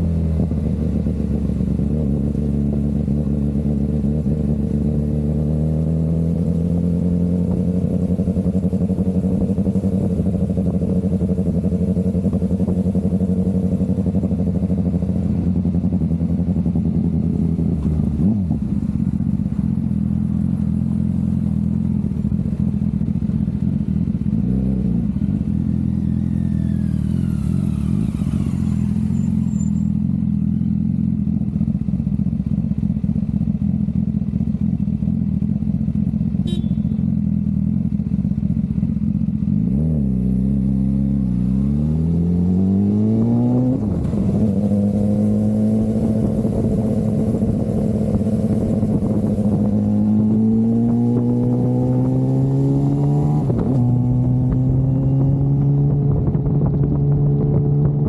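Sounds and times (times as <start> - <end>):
motorcycle engine cruising: 0.0 - 58.0.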